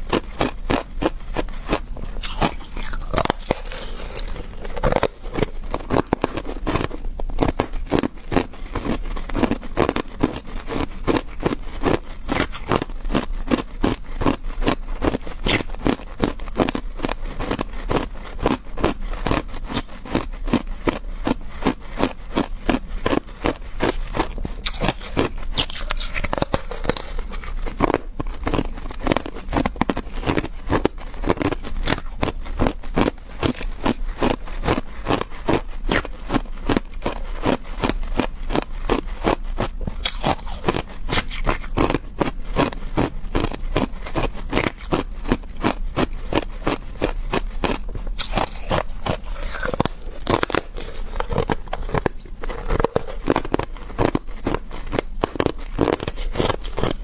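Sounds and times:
ice being chewed: 0:00.0 - 0:57.0.

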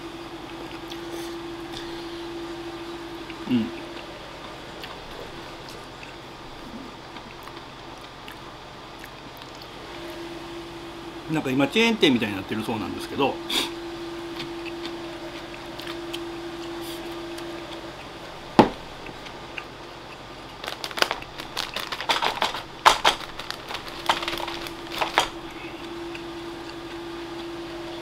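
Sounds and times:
steady low hum: 0:00.0 - 0:28.0
paper tissue rustling: 0:20.6 - 0:25.6.

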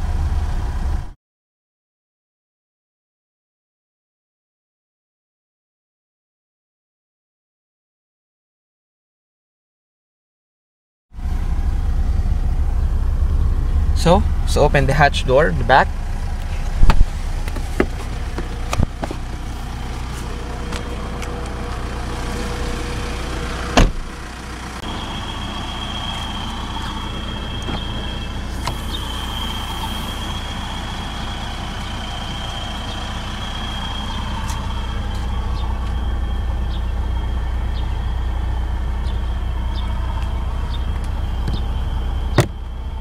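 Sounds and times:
steady low rumble: 0:11.2 - 0:43.0
car door latch clunk: 0:23.7 - 0:24.1, 0:42.3 - 0:42.6
thin high whine: 0:24.8 - 0:38.1.

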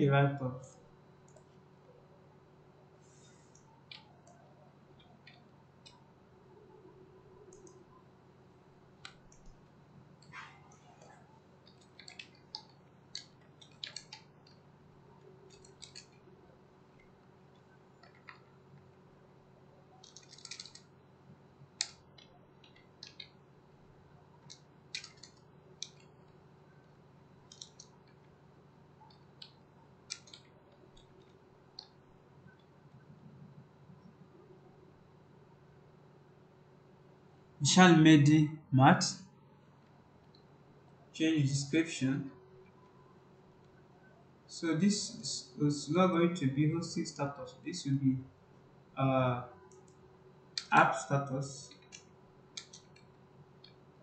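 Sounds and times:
low room hum: 0:00.0 - 0:54.0
computer mouse clicks: 0:01.3 - 0:01.6, 0:03.3 - 0:04.4, 0:07.4 - 0:07.8, 0:10.2 - 0:14.6, 0:15.2 - 0:16.3, 0:17.0 - 0:18.9, 0:20.0 - 0:20.9, 0:21.8 - 0:23.4, 0:24.4 - 0:26.4, 0:27.5 - 0:28.3, 0:29.0 - 0:33.0, 0:51.6 - 0:53.8.

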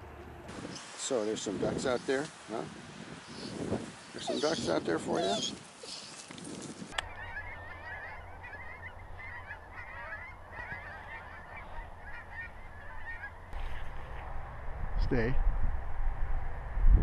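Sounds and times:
waterfowl calling: 0:03.3 - 0:06.2, 0:06.9 - 0:14.2
steady low rumble: 0:07.0 - 0:17.0.

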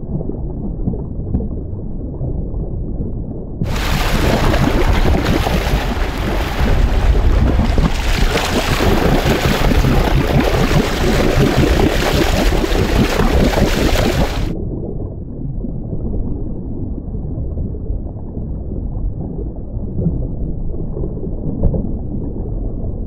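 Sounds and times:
wind buffeting microphone: 0:03.6 - 0:14.6
sea water splashing: 0:03.7 - 0:14.6.

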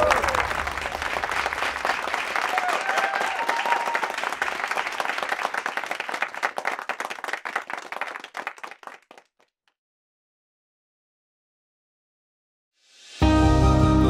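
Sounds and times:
crowd applauding: 0:00.0 - 0:09.5.

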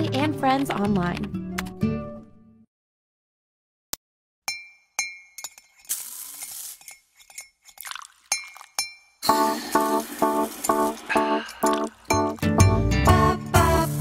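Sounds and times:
spoon clinking in ceramic mug: 0:06.8 - 0:09.1.

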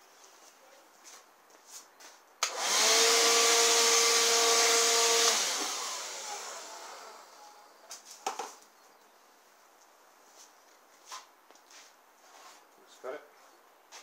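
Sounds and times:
vacuum cleaner whining: 0:02.4 - 0:07.8.

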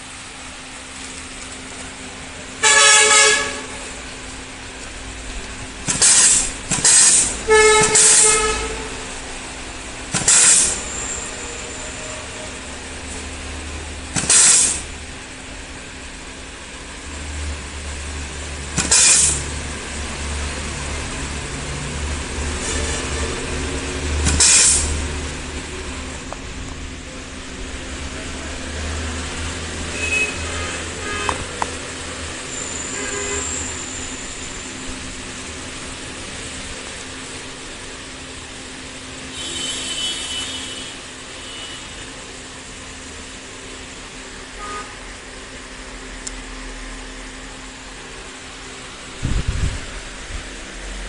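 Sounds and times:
compressed air exhaust bursts: 0:01.9 - 0:41.8
compressed air hiss: 0:05.9 - 0:08.9, 0:10.1 - 0:11.1, 0:14.2 - 0:14.9, 0:18.8 - 0:19.5, 0:24.2 - 0:25.1.

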